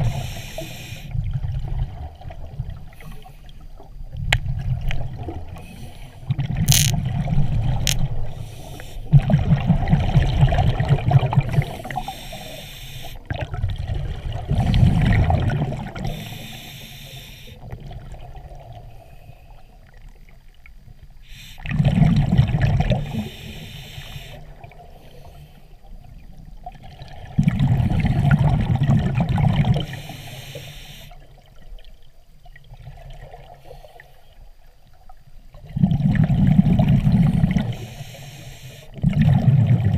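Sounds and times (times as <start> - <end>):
scuba regulator breathing underwater: 0.0 - 1.2, 8.3 - 9.2, 11.5 - 13.3, 14.5 - 17.7, 21.2 - 21.9, 23.0 - 25.7, 29.8 - 31.3, 37.0 - 39.0
exhaled bubbles rushing: 9.1 - 12.0, 13.3 - 16.2, 21.6 - 23.2, 26.8 - 29.9, 39.0 - 39.9.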